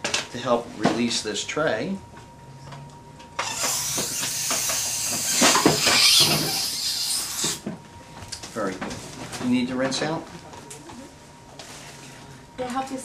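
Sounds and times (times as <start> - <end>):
dental air syringe hissing: 3.4 - 7.6.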